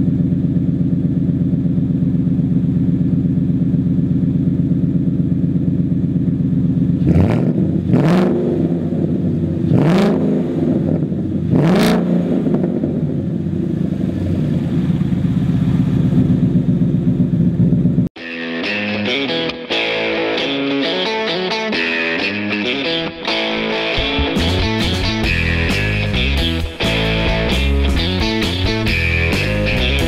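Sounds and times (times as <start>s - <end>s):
car engine idling: 0.0s - 18.2s, 22.5s - 30.0s
engine revving: 7.0s - 30.0s.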